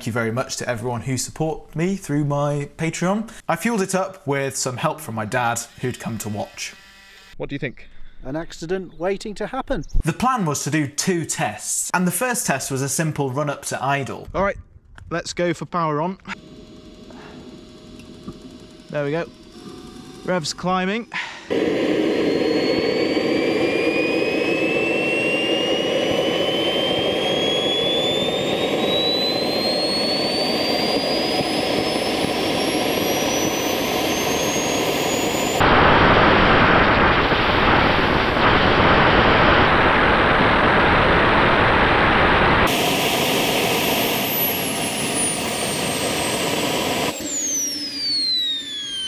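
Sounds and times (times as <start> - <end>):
jet turbine whine and exhaust rush: 16.3 - 49.0.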